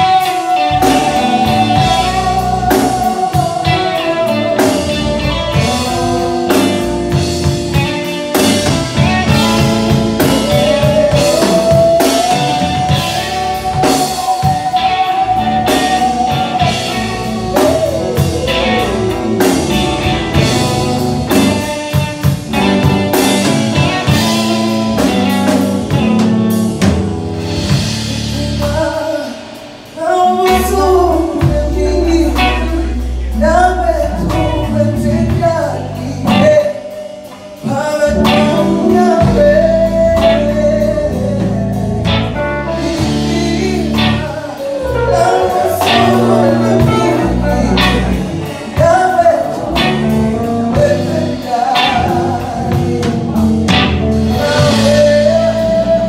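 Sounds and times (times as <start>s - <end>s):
lead singer: 0.0s - 56.0s
live band playing: 0.0s - 56.0s.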